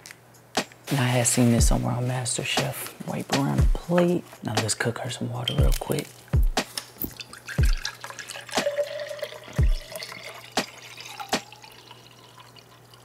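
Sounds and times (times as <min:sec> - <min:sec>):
water pouring into a glass: 0:07.1 - 0:13.0.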